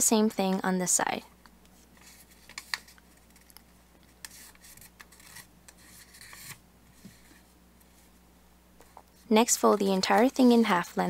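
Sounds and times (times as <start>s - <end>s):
paper rubbing and rasping: 4.2s - 7.5s.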